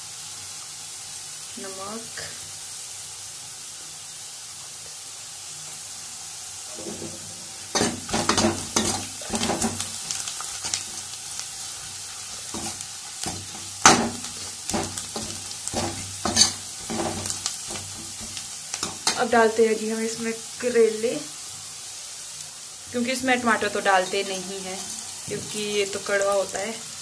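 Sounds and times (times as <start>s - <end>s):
onions sizzling in hot oil: 0.0s - 27.0s
metal ladle scraping a pan: 6.7s - 9.8s, 12.5s - 19.2s, 24.1s - 25.8s.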